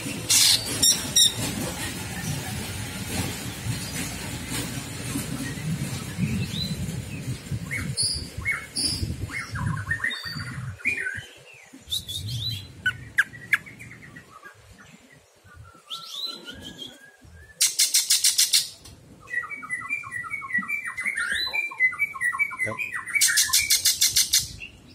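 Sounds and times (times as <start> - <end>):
harsh rattling bird trill: 0.3 - 1.4
bird whistling song: 7.7 - 14.3, 15.6 - 24.7.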